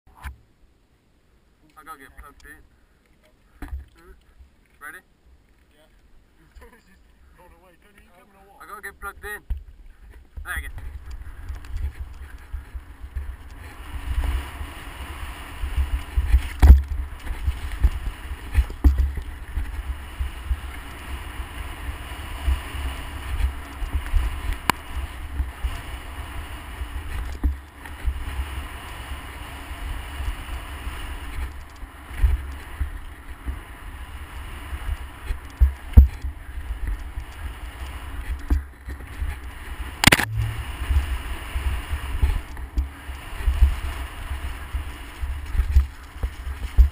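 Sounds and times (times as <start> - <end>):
wind rumbling on microphone: 9.5 - 46.9
tyres on loose gravel: 10.0 - 46.9.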